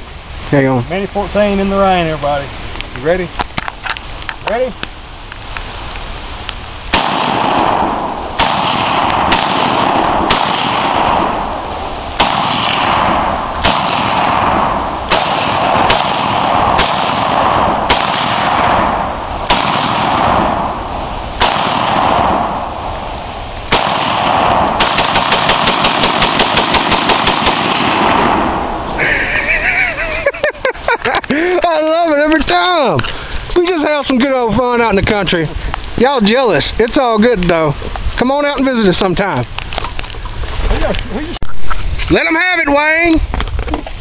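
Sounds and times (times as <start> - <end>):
rapid rifle fire: 6.9 - 11.5, 12.2 - 20.8, 21.4 - 22.6, 23.7 - 28.8
rifle shots with echo: 6.9 - 11.6, 12.2 - 22.9, 23.7 - 28.9.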